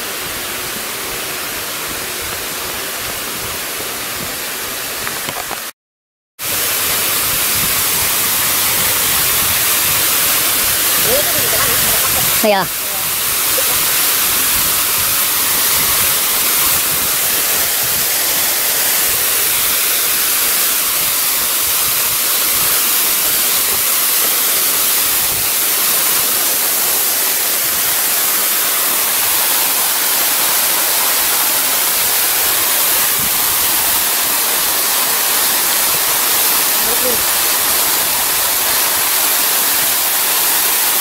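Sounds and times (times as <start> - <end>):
waterfall rushing: 6.4 - 41.0.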